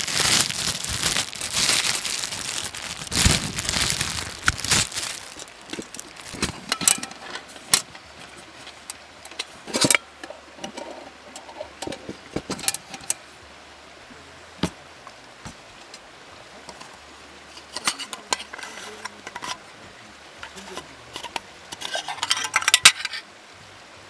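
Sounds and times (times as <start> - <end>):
small objects clicking and rustling: 0.0 - 13.2, 20.4 - 23.2.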